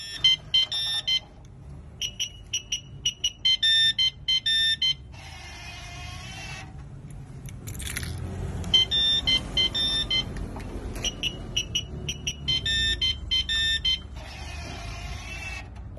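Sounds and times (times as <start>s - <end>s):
alarm beeping: 0.0s - 1.3s, 2.0s - 5.1s, 8.7s - 10.3s, 11.0s - 14.4s.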